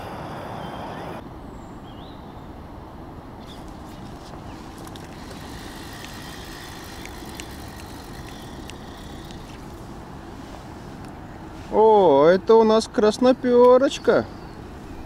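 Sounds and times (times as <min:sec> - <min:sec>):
fishing reel whirring and clicking: 0:04.8 - 0:09.8.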